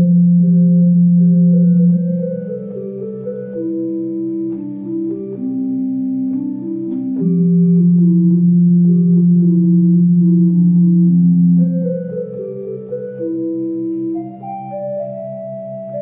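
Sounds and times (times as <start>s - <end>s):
electronic keyboard organ melody: 0.0s - 16.0s.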